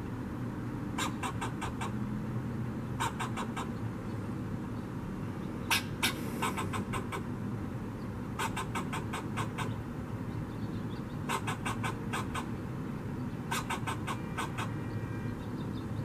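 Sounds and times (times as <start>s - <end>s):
squirrel alarm barks: 1.0s - 2.0s, 3.0s - 3.8s, 5.7s - 7.3s, 8.4s - 9.8s, 11.2s - 12.6s, 13.5s - 14.9s.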